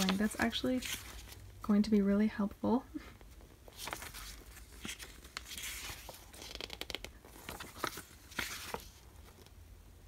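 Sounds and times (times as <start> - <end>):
booklet pages turning: 0.0 - 1.6, 3.2 - 9.6.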